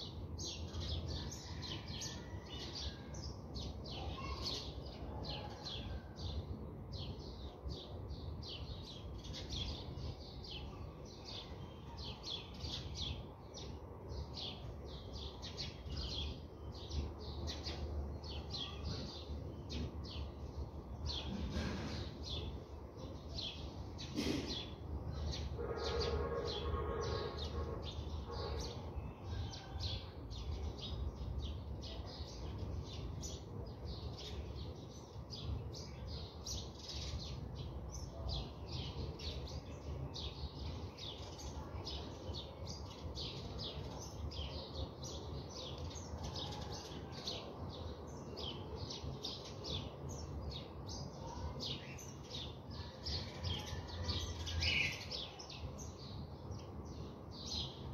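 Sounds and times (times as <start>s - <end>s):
small birds chirping: 0.0s - 57.9s.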